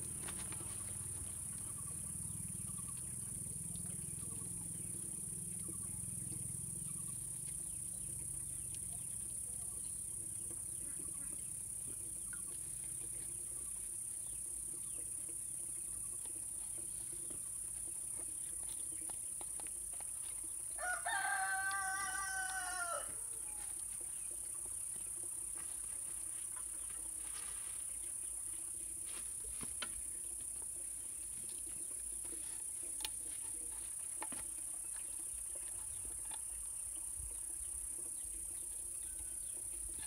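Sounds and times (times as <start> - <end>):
rooster crowing: 20.8 - 23.6.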